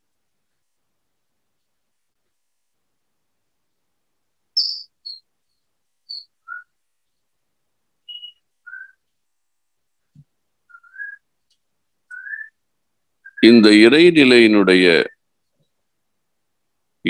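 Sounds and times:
birds chirping whistled notes: 4.5 - 6.8, 8.0 - 9.1, 10.6 - 11.3, 12.0 - 12.6, 13.2 - 13.5.

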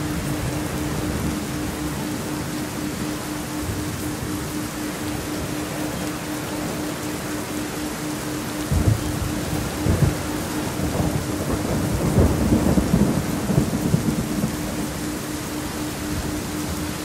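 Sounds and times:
steady rain: 0.0 - 17.0
thunder rumbling: 8.7 - 17.0.

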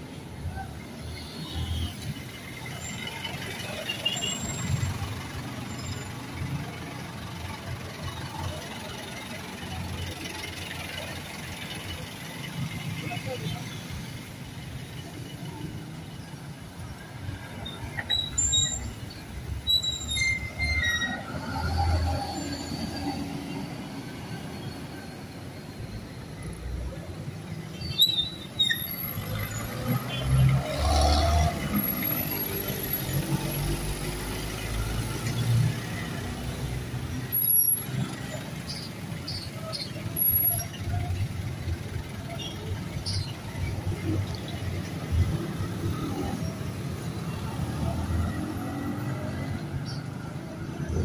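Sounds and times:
vehicles passing: 0.0 - 51.0
short high squeals: 17.7 - 22.9, 27.8 - 29.2.

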